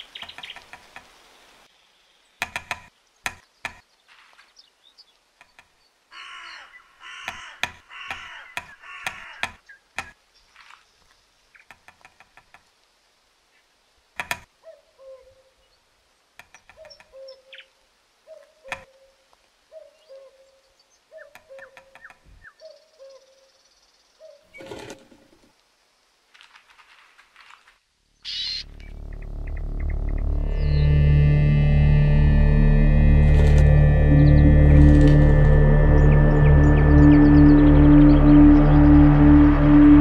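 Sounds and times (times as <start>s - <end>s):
woodpecker tapping on wood: 0.0s - 1.2s, 2.4s - 4.0s, 5.4s - 6.4s, 7.0s - 10.2s, 11.6s - 12.7s, 14.2s - 14.5s, 16.4s - 17.4s, 18.6s - 19.0s, 21.2s - 22.5s
crow-like cawing calls: 6.1s - 9.6s, 28.2s - 30.8s.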